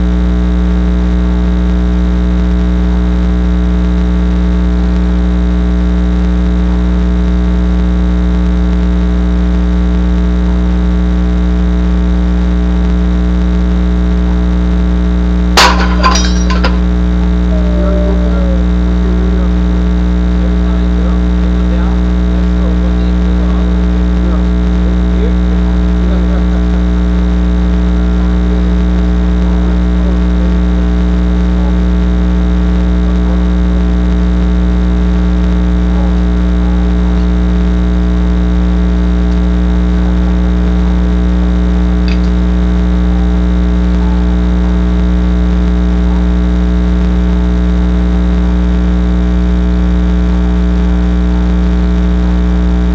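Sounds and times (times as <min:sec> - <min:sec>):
loud buzzing electrical hum: 0:00.0 - 0:52.9
faint voices: 0:15.6 - 0:26.8, 0:35.8 - 0:37.6, 0:42.1 - 0:46.3.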